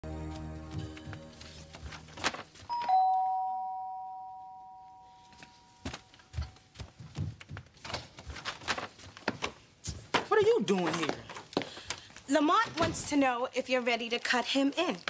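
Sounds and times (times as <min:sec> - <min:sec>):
footsteps: 0:00.3 - 0:03.1, 0:05.1 - 0:13.2
two-note doorbell chime: 0:02.7 - 0:06.2.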